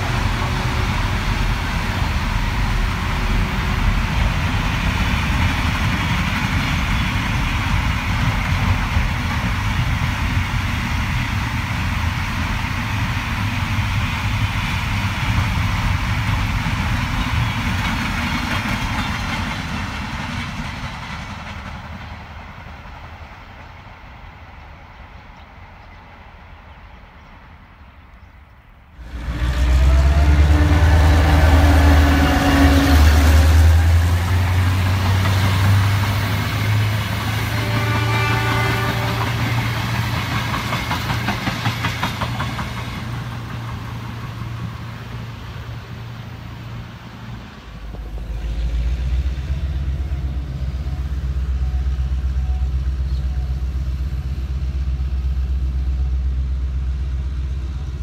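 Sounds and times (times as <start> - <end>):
diesel engine rumble: 29.0 - 37.3, 42.6 - 58.0
carriages rolling past: 29.0 - 58.0.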